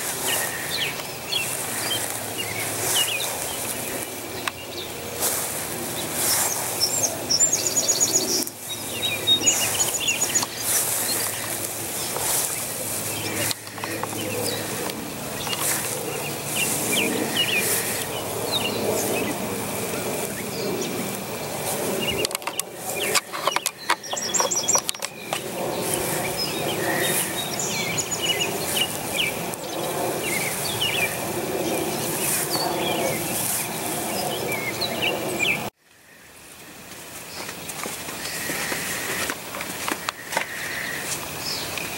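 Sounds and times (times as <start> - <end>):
birds chirping: 0.0 - 41.9
outdoor background noise: 0.0 - 41.9
cluster of clicks: 13.4 - 15.9, 22.2 - 25.5.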